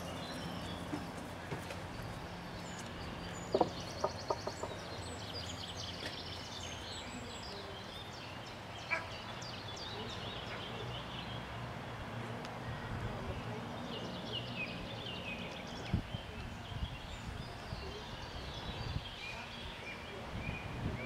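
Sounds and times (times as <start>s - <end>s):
songbirds chirping and trilling: 0.0s - 21.0s.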